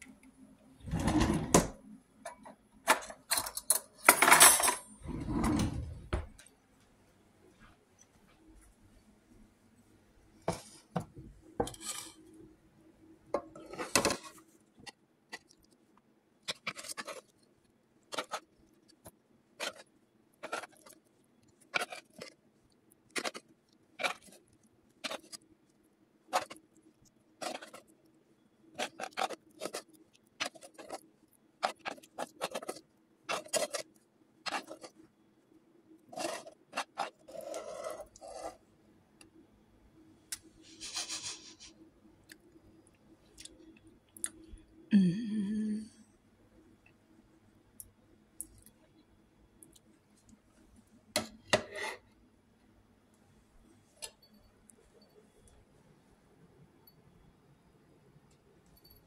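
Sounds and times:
spoon scraping a pan: 0:11.6 - 0:12.3, 0:13.4 - 0:14.4, 0:27.4 - 0:27.8, 0:31.6 - 0:33.8, 0:36.1 - 0:38.6, 0:51.2 - 0:52.1.

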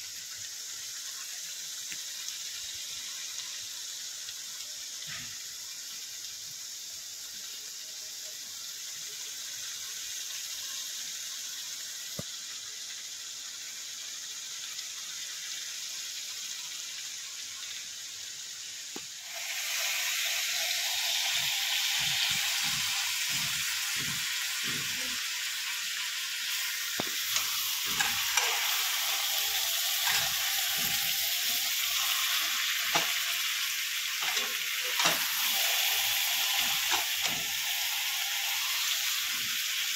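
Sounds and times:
food sizzling in oil: 0:00.0 - 0:39.9
spatula scraping pan: 0:27.2 - 0:33.4, 0:34.1 - 0:37.5.

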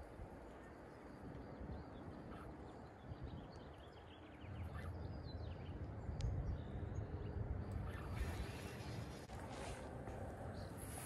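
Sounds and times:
wind rumbling on microphone: 0:00.0 - 0:11.0
faint bird chirps: 0:00.4 - 0:09.2.

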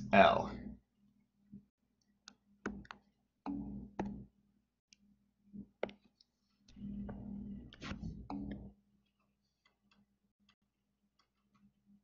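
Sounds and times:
faint low hum: 0:05.0 - 0:09.1.

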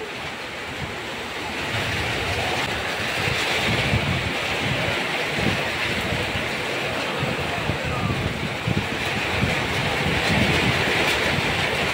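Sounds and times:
heavy rain on water and paving: 0:00.0 - 0:11.9
wind buffeting microphone: 0:00.0 - 0:11.9.

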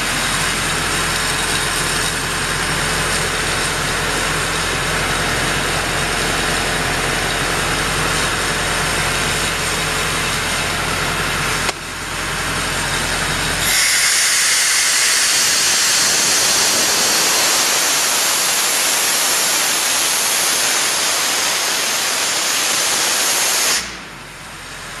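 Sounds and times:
diesel engine running: 0:00.0 - 0:22.0, 0:23.8 - 0:25.0
compressed air hissing: 0:13.6 - 0:24.0.

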